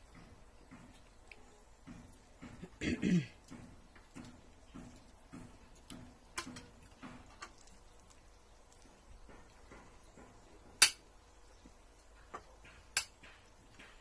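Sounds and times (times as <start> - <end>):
cutlery tapping on plates: 3.5 - 7.6.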